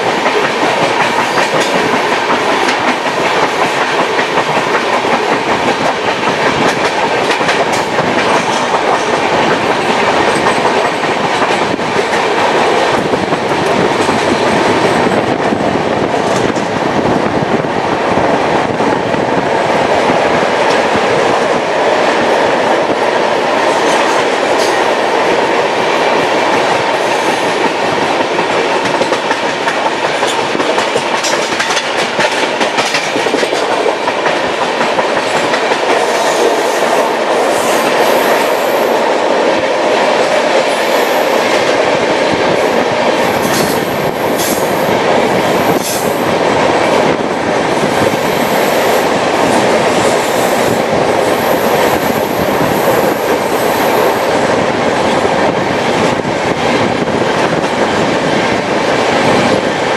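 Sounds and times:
wheels clacking over rail joints: 0.0s - 14.4s, 27.5s - 38.0s
train wheel and wind rush: 0.0s - 59.9s.

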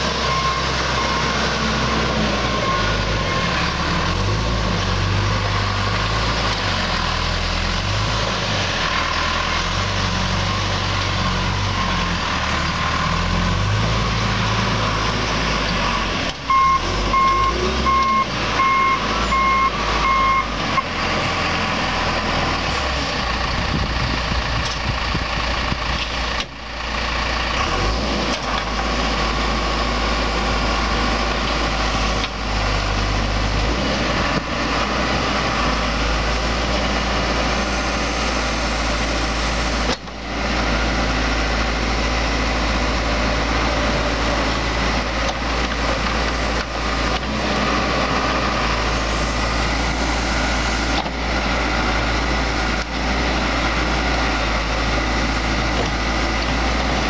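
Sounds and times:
diesel engine running: 0.0s - 57.0s
reverse alarm beeping: 0.2s - 3.6s, 15.9s - 20.9s.

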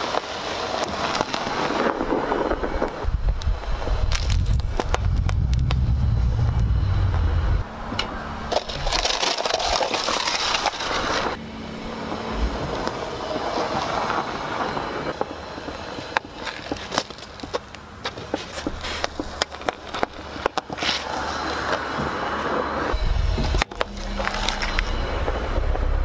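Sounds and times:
toys cracking under tyre: 0.0s - 5.8s, 8.0s - 11.4s, 15.2s - 21.8s
tyre crunching over snow: 16.2s - 22.6s.

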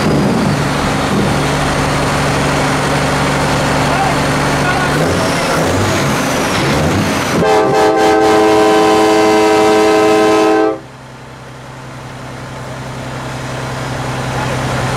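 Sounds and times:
truck diesel engine: 0.0s - 14.9s
multi-tone train horn: 7.3s - 10.9s.

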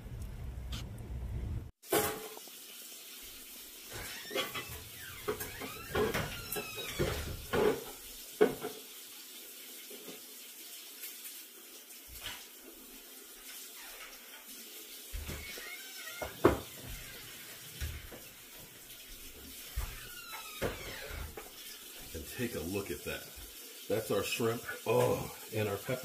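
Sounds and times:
kitchen tap running into sink: 1.8s - 26.0s
knocks and clinks in sink: 3.9s - 8.8s, 16.2s - 17.1s, 19.7s - 21.6s.

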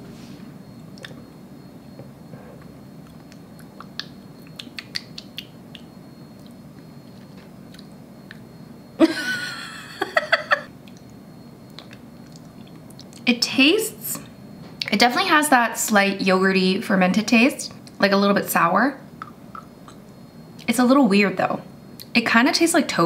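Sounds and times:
mouth clicks and lip smacks: 0.9s - 1.2s, 2.6s - 8.4s, 10.8s - 13.2s.

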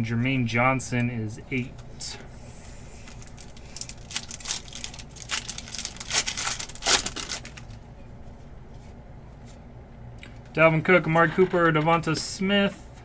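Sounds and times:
foil wrapper crinkling and ripping: 3.0s - 7.8s.

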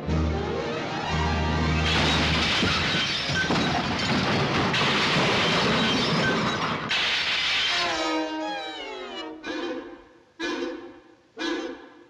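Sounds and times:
cartoon glass shattering: 1.8s - 8.0s.

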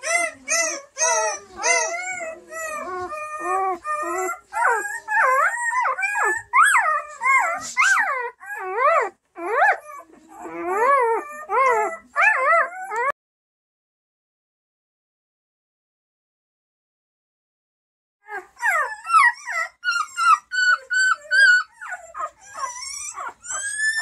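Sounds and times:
puppy whimpering cries: 0.0s - 13.2s, 18.2s - 24.0s.

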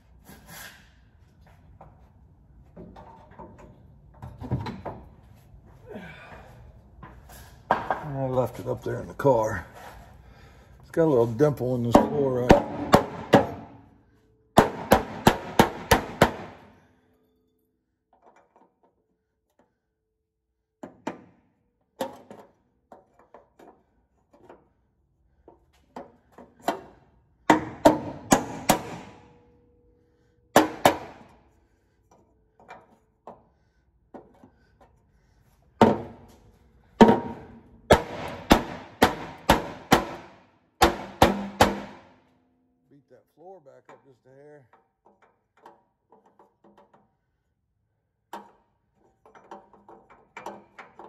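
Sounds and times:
mallet striking sheet metal: 11.9s - 13.8s, 14.6s - 16.7s, 27.5s - 29.3s, 37.0s - 42.2s.

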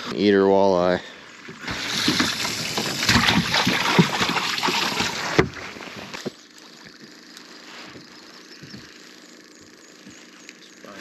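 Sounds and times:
water splashing around boat: 1.4s - 6.2s.

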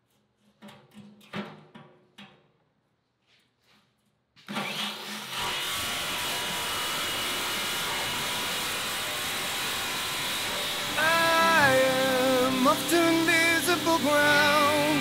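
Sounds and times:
jigsaw cutting steel: 4.4s - 15.0s.

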